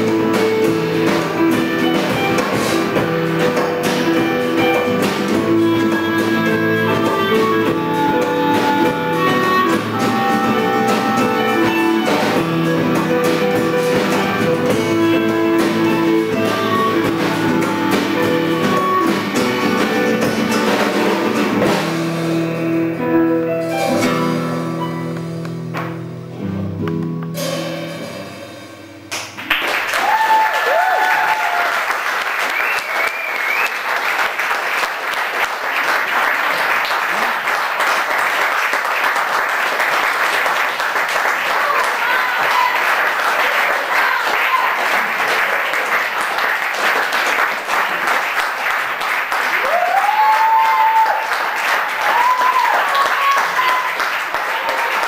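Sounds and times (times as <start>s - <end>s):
music: 0.0s - 34.8s, 37.8s - 41.5s, 44.4s - 55.0s
audience applauding: 29.1s - 55.0s
crowd calling out: 29.9s - 33.6s, 41.3s - 45.2s, 49.4s - 55.0s.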